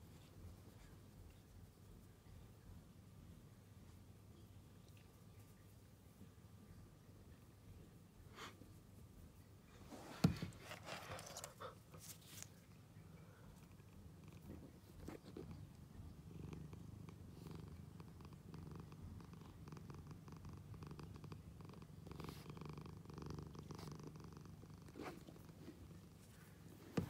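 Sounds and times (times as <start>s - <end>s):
cat purring: 12.9s - 27.0s.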